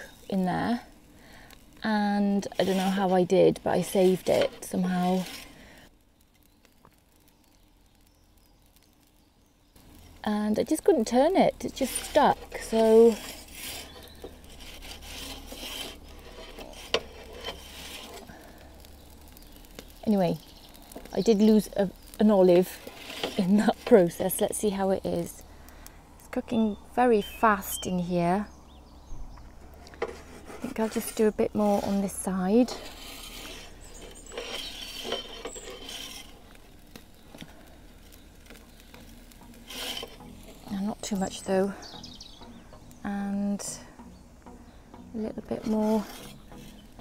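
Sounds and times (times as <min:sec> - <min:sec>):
metal peel scraping on stone: 0:02.0 - 0:05.6, 0:11.6 - 0:19.9, 0:22.5 - 0:24.3, 0:29.8 - 0:41.2, 0:45.5 - 0:47.0.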